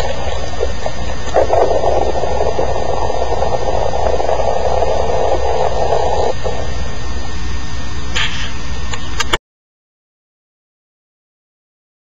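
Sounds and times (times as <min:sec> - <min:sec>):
muffled rushing bubbling water: 0:00.0 - 0:07.6.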